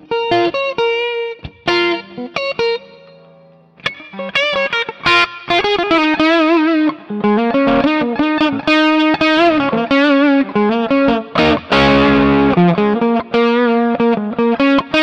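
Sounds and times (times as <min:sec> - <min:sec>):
electric guitar licks: 0:00.0 - 0:15.0.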